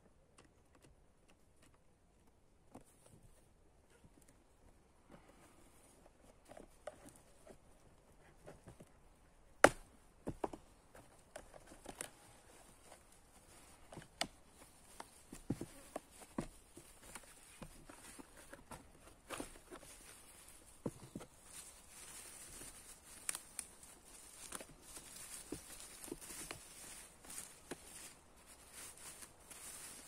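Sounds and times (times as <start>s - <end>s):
cardboard box being handled: 10.2s - 30.0s.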